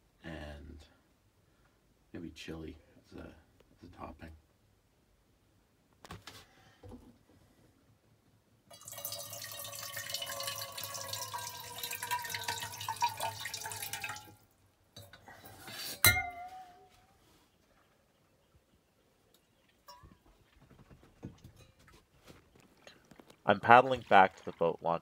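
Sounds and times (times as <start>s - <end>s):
water pouring into metal mug: 8.7s - 14.4s, 23.6s - 24.8s.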